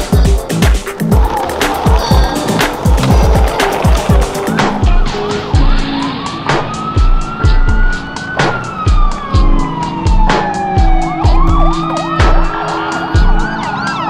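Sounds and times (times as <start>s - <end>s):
music with heavy beat: 0.0s - 6.0s, 8.9s - 13.6s
fire engine siren wailing: 1.2s - 14.0s.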